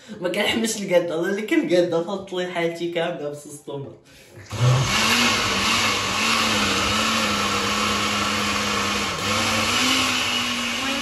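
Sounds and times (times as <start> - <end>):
blender motor running: 4.5 - 11.0.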